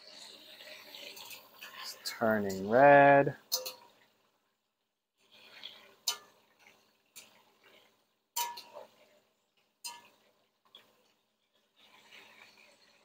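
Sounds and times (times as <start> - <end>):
oil frying and stirring: 0.0 - 13.0
metal skimmer clinking on pot: 3.5 - 3.9, 6.0 - 6.3, 8.4 - 8.8, 9.8 - 10.1.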